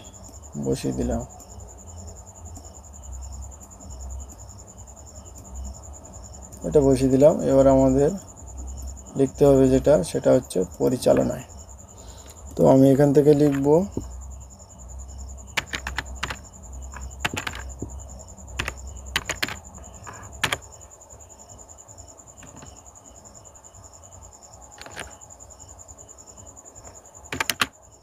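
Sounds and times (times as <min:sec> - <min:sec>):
faint pulsing chirp: 0:00.0 - 0:28.0
computer keys clicking: 0:15.5 - 0:20.7, 0:24.8 - 0:25.2, 0:27.3 - 0:27.8.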